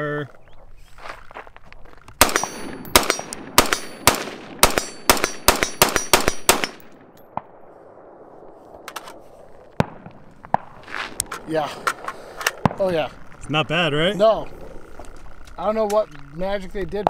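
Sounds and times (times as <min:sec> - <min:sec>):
gunshots: 0:02.2 - 0:08.3, 0:09.0 - 0:13.2.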